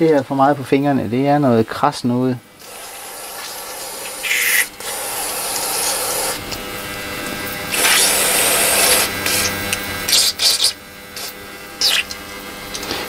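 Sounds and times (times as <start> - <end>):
spray can hissing: 2.6 - 6.4, 7.7 - 12.1.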